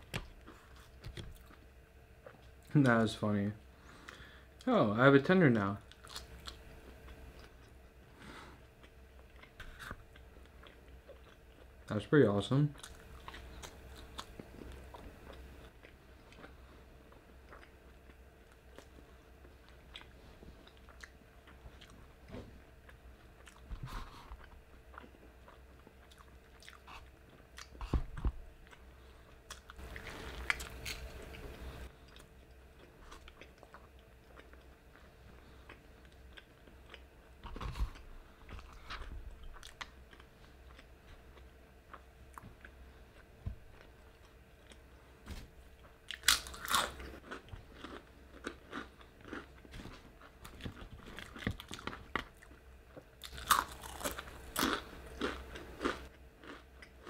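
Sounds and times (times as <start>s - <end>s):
chewing crispy fried chicken: 12.7s - 22.1s, 22.8s - 27.9s, 28.6s - 44.9s, 45.8s - 57.0s.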